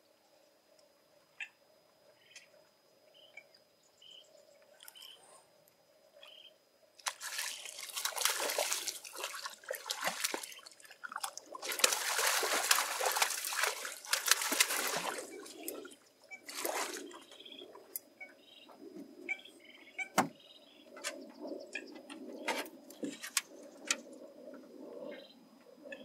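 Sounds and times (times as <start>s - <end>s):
fish thrashing and splashing: 7.0s - 15.9s, 16.5s - 17.2s.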